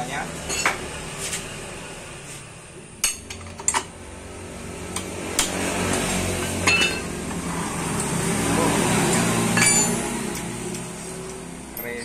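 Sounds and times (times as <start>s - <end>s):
metal tools clinking: 6.6s - 7.0s, 9.6s - 10.0s, 11.7s - 12.0s.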